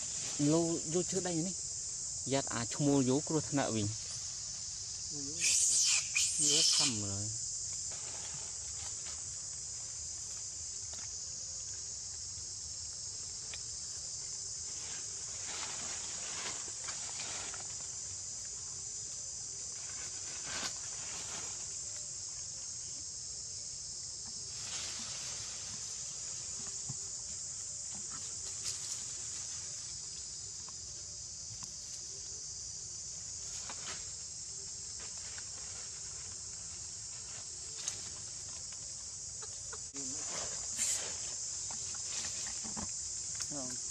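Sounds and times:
high-pitched insect chorus: 0:00.0 - 0:43.9.

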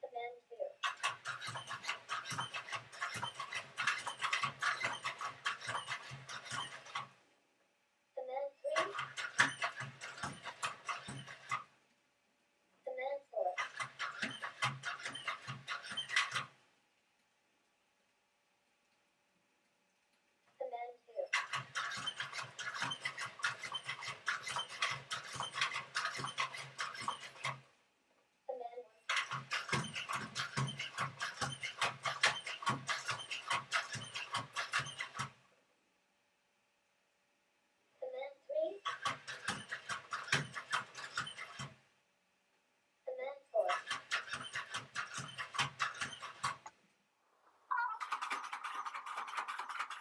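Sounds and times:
robot feet clicking and pattering: 0:00.8 - 0:07.1, 0:08.7 - 0:11.6, 0:47.7 - 0:50.0
robot joint motors humming: 0:00.8 - 0:07.2, 0:21.3 - 0:27.7, 0:29.0 - 0:35.4.

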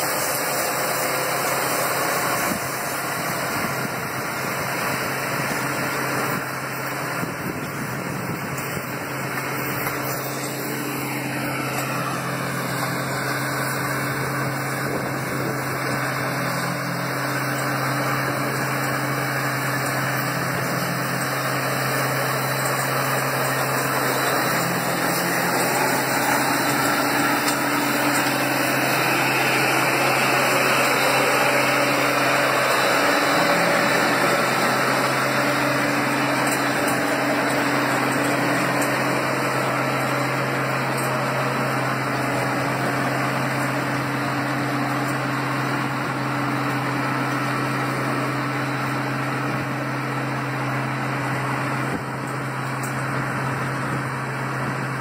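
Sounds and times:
diesel engines running: 0:00.0 - 0:55.0.

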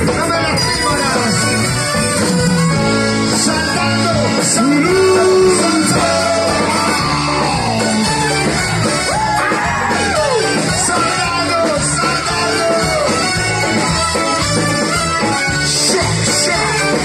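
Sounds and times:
live band playing: 0:00.0 - 0:17.0
person singing: 0:02.2 - 0:08.4, 0:15.6 - 0:17.0.

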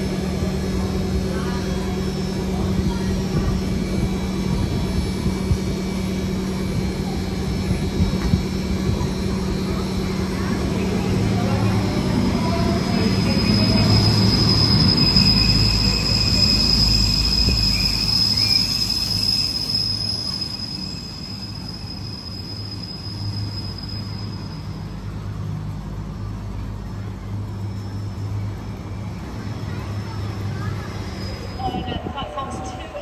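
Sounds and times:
railcar engine humming: 0:00.0 - 0:33.0
high-pitched brake squeal: 0:07.4 - 0:25.1, 0:27.6 - 0:29.1, 0:30.0 - 0:32.6.

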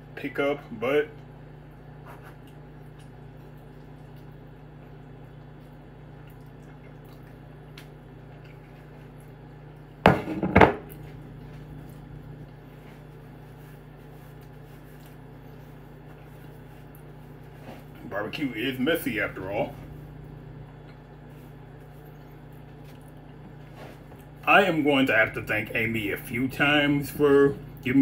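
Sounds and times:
steady low hum: 0:00.0 - 0:28.0
eating from a plate: 0:01.1 - 0:10.2, 0:10.8 - 0:18.0, 0:19.7 - 0:24.4.

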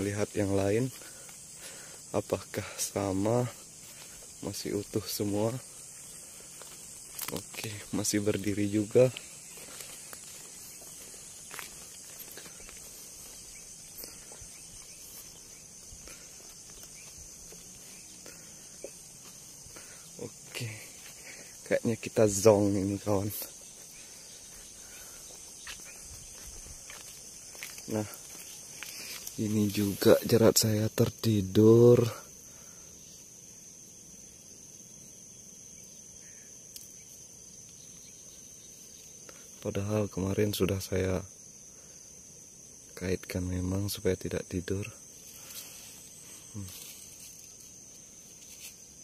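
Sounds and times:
crickets chirping: 0:00.0 - 0:49.0
insects trilling: 0:00.0 - 0:49.0
footsteps on dry ground: 0:03.2 - 0:30.3.

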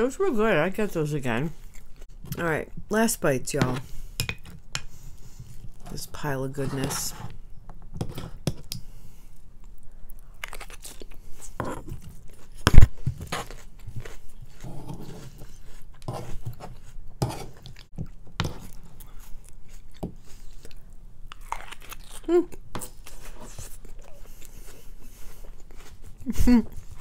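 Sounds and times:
chewing food: 0:08.7 - 0:17.0, 0:17.6 - 0:27.0.

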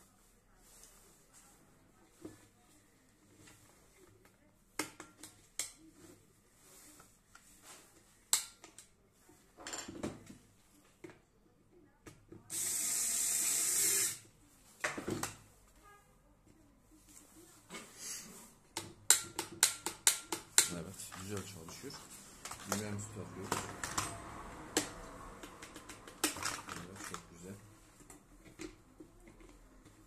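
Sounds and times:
plastic and metal parts clicking: 0:25.5 - 0:27.2.

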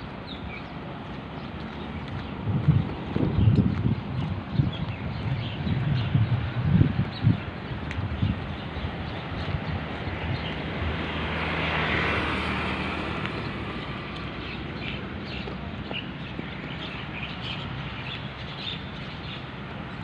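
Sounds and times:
outdoor background noise: 0:00.0 - 0:20.0
motor vehicle passing: 0:08.2 - 0:17.6.

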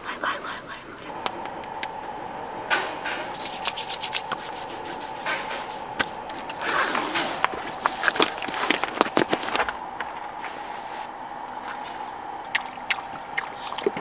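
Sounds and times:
hands rubbing skin: 0:03.3 - 0:11.2.

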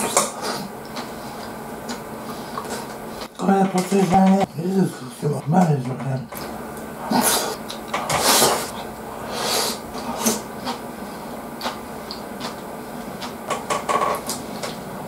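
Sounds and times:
chewing and wet mouth noises: 0:06.3 - 0:10.8, 0:11.6 - 0:13.4.

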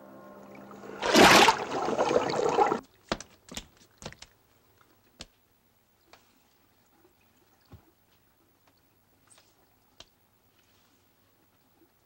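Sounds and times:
loud gush of water: 0:00.7 - 0:02.8.

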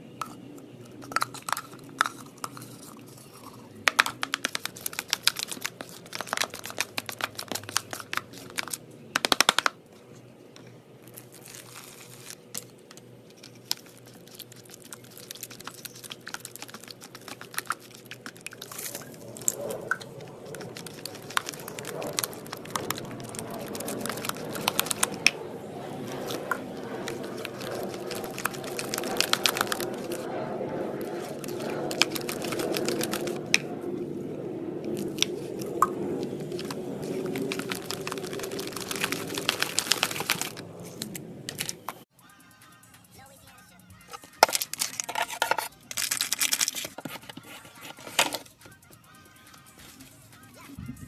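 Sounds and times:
glue stirred in plastic bowl: 0:00.2 - 0:09.6, 0:13.3 - 0:25.4, 0:26.0 - 0:30.2, 0:31.0 - 0:33.7, 0:34.9 - 0:42.0, 0:44.1 - 0:48.5.

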